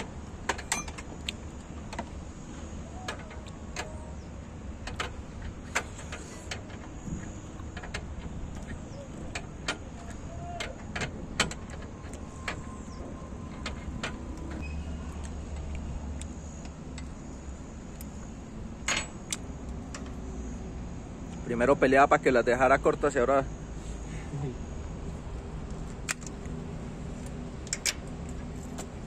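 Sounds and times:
low engine rumble: 0.0 - 29.0
tools clicking and clinking: 0.5 - 2.0.

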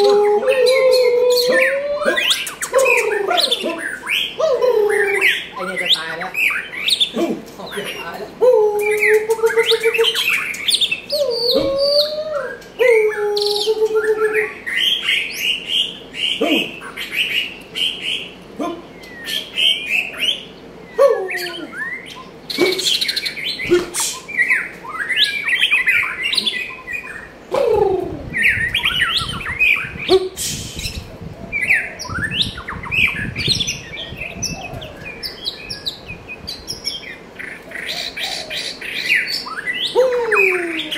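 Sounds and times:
bird singing: 0.0 - 40.9.

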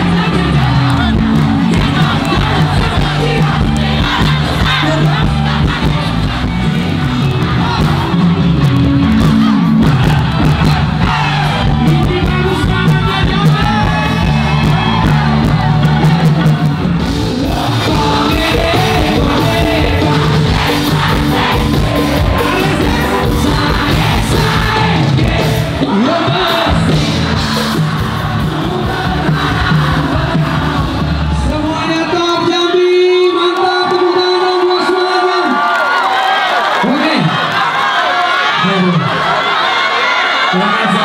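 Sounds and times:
live band with singing: 0.0 - 35.8
crowd singing and shouting: 0.0 - 41.0.

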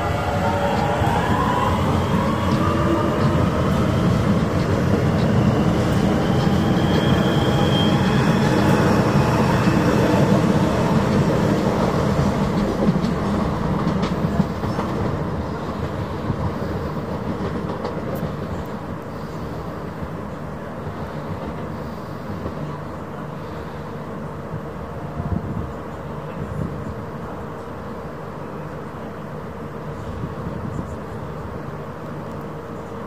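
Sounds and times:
train wheels clattering on rails: 0.5 - 18.8.

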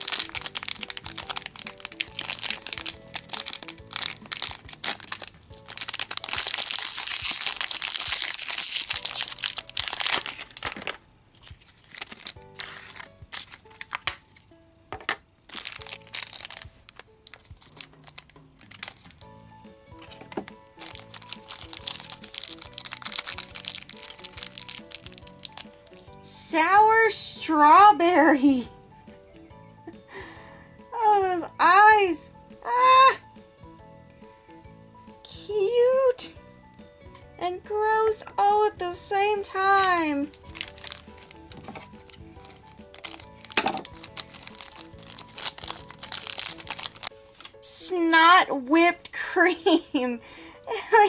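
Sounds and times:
packaging torn and crinkled: 0.0 - 14.4, 15.4 - 26.1, 39.5 - 47.6
soft background music: 0.0 - 51.0.

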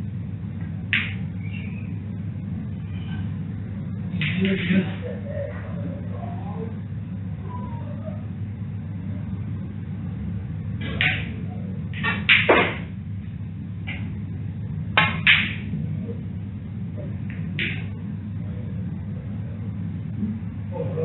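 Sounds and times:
low hum: 0.0 - 21.0
snooker balls clacking: 0.9 - 1.3, 10.8 - 13.0, 15.0 - 15.7, 17.2 - 18.0.

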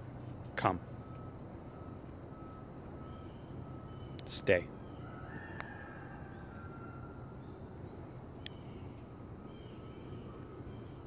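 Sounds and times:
low background rumble: 0.0 - 11.0
faint bird calls: 0.2 - 11.0.

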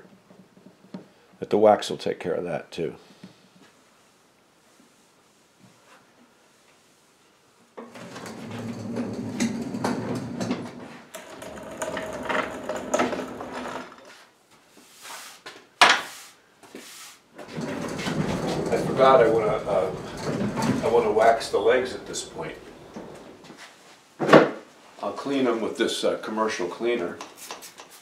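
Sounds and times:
cart wheels rumbling on concrete: 7.9 - 14.1, 17.4 - 23.5.

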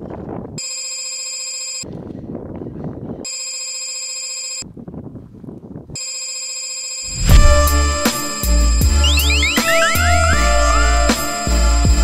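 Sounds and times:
telephone ringing: 0.6 - 1.9, 3.3 - 4.7, 6.0 - 10.2.

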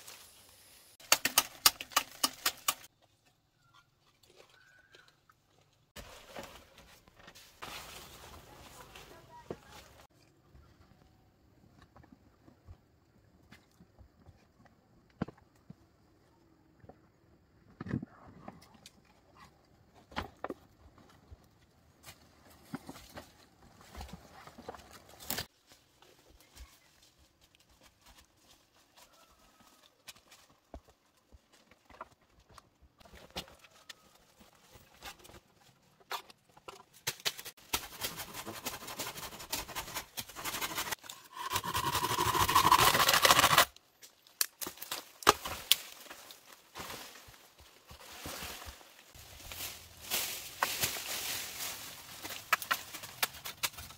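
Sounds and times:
dry leaves and brush rustling: 0.0 - 2.9, 5.9 - 10.1, 22.0 - 31.9, 36.9 - 53.9
footsteps crunching on leaf litter: 45.9 - 53.0.

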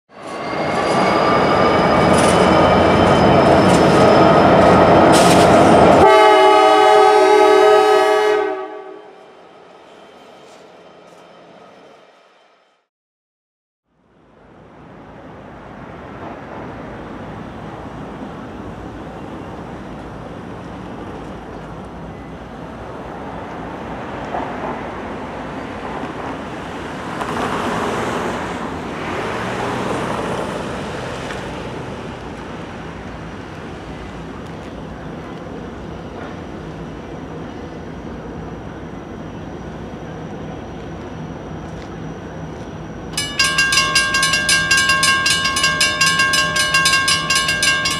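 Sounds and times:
crossing warning bell ringing: 0.2 - 8.0, 43.1 - 47.9
road traffic passing: 14.1 - 47.9.

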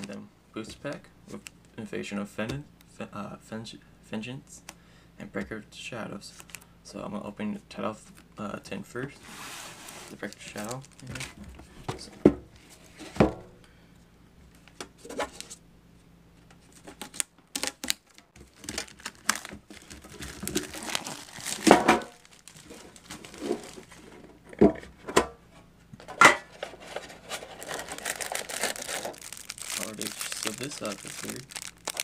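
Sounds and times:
plastic wrap crinkling and tearing: 9.8 - 11.3, 16.7 - 24.1, 26.8 - 32.0.

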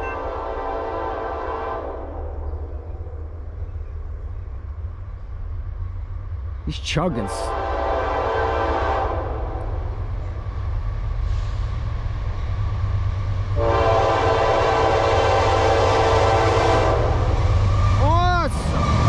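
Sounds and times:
locomotive air horn blasts: 0.0 - 2.2, 7.3 - 9.6, 13.6 - 17.3.

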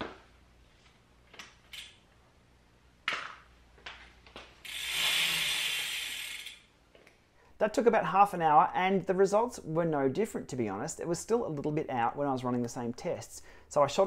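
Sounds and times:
bike freehub ratcheting: 4.6 - 6.7.

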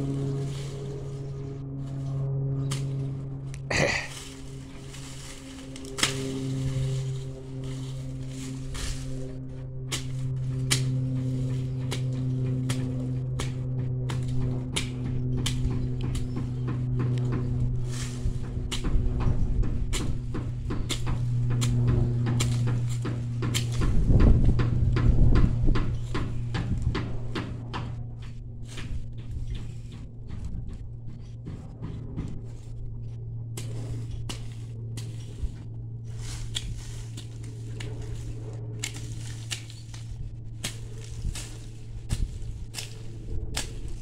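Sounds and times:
dry plant stalks snapping: 0.0 - 29.8, 32.5 - 44.0
low rumble: 0.0 - 44.0
steady low hum: 0.0 - 44.0.

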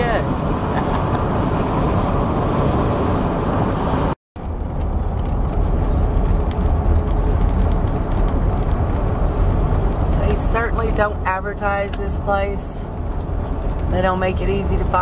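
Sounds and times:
road and engine rumble: 0.0 - 15.0.

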